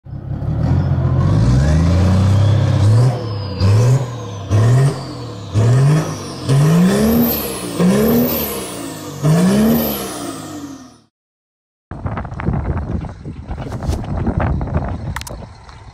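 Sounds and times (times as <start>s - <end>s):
engine revving: 0.1s - 11.1s.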